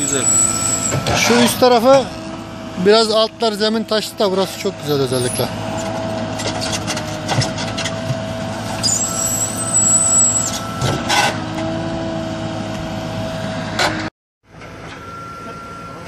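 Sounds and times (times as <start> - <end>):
diesel engine running under load: 0.0 - 16.0.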